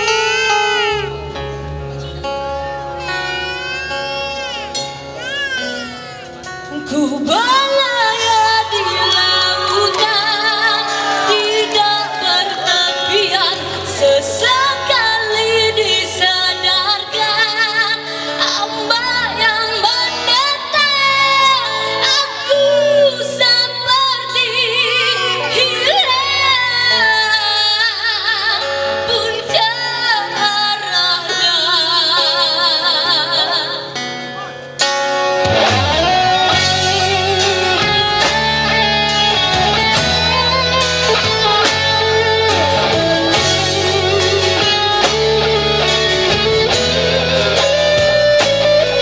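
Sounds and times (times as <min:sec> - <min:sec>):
live rock band playing: 0:00.0 - 0:49.0
woman singing with vibrato: 0:06.6 - 0:34.2.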